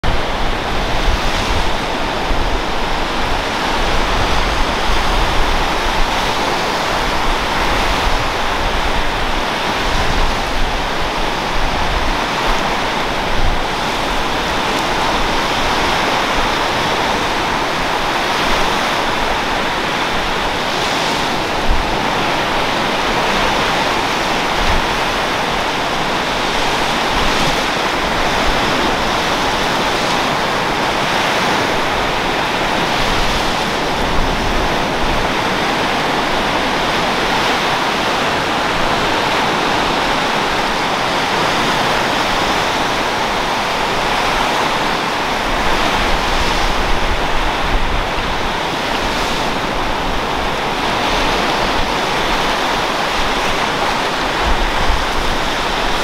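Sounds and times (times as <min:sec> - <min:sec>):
waves breaking on beach: 0:00.0 - 0:56.0
wind bumps on microphone: 0:00.0 - 0:56.0.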